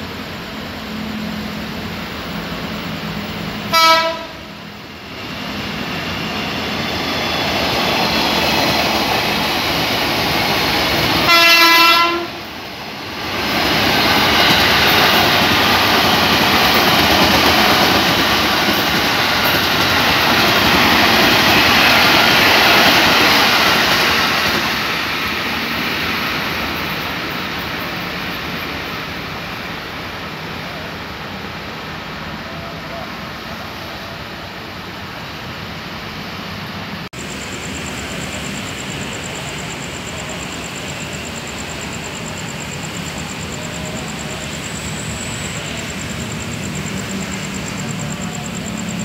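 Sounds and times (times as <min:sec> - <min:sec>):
train rushing past: 0:00.0 - 0:49.0
train horn blasts: 0:03.7 - 0:04.5, 0:11.2 - 0:12.4.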